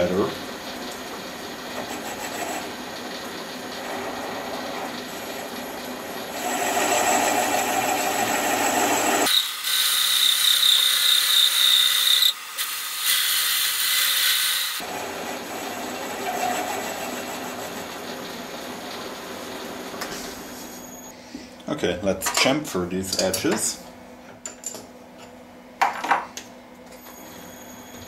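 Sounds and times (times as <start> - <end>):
lathe cutting metal: 0.0 - 19.9
high-pitched ringing squeal: 8.6 - 12.4, 20.4 - 21.2, 27.0 - 28.0.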